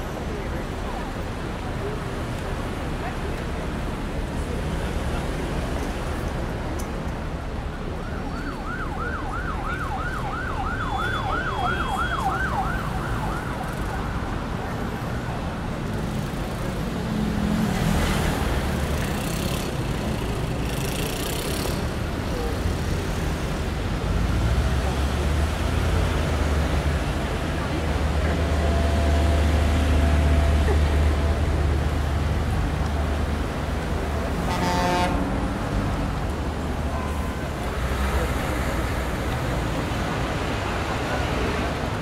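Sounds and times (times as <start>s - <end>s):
city traffic rumble: 0.0s - 42.0s
distant emergency siren yelping: 8.0s - 14.0s.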